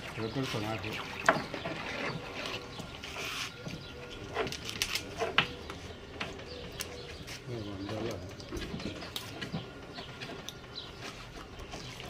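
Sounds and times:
bird cooing: 0:01.8 - 0:09.7.

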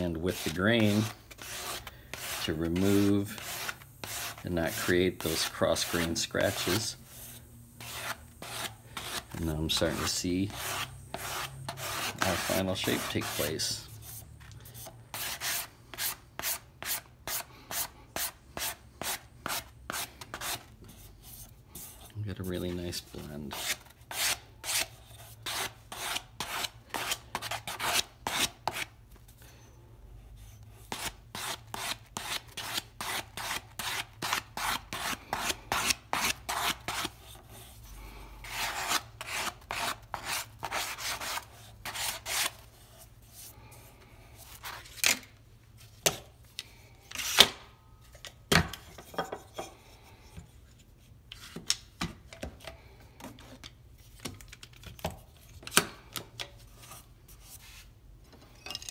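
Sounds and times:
sandpaper rubbing on wood: 0:00.0 - 0:14.2.

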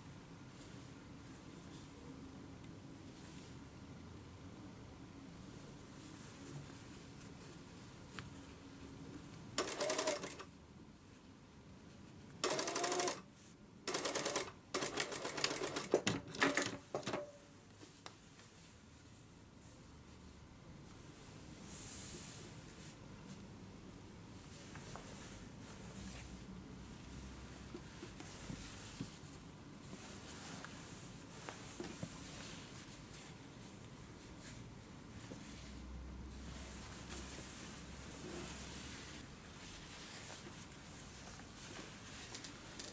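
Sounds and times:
fabric rustling: 0:05.8 - 0:08.6, 0:24.4 - 0:42.9
sewing machine stitching: 0:09.6 - 0:10.5, 0:12.4 - 0:13.2, 0:13.9 - 0:16.8.

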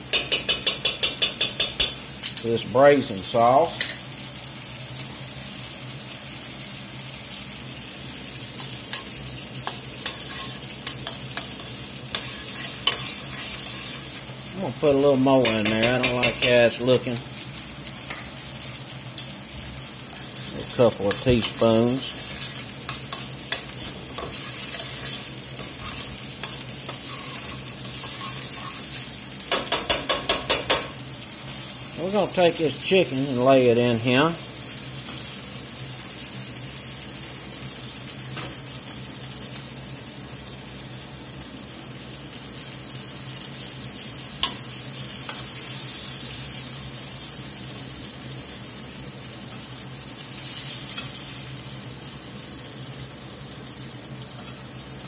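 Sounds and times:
liquid simmering and sizzling in a pot: 0:00.0 - 0:55.0
utensil scraping a pot: 0:10.0 - 0:14.3, 0:20.1 - 0:29.2.

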